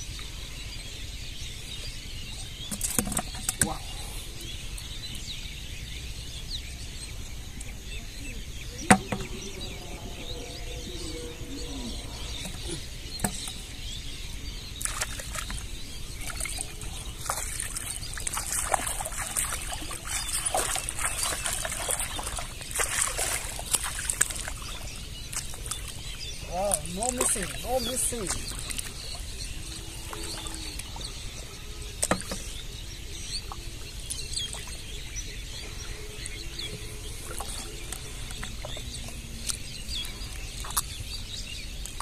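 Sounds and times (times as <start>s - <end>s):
shallow water splashing: 8.6s - 13.8s, 14.7s - 31.3s.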